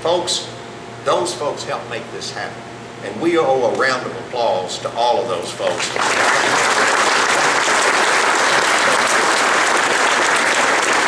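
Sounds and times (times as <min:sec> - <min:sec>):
audience applauding: 0:05.7 - 0:11.0.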